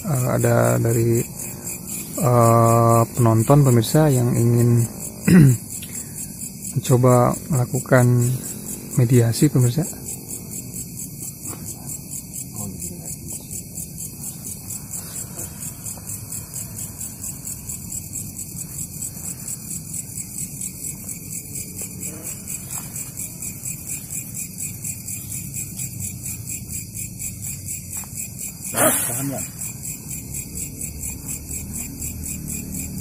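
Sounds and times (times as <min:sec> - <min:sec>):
insects chirping: 0:00.0 - 0:33.0.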